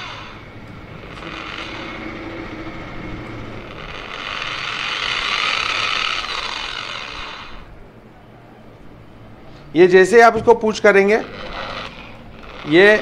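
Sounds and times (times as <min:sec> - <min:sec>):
electric orbital sander running: 0:00.0 - 0:07.8, 0:10.9 - 0:13.0.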